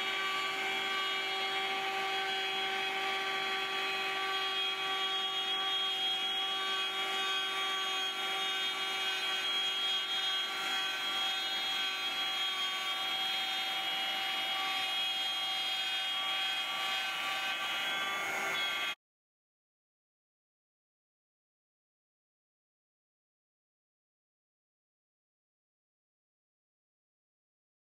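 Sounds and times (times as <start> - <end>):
bit cutting wood: 0.0 - 19.0
router spindle whine: 0.0 - 19.0.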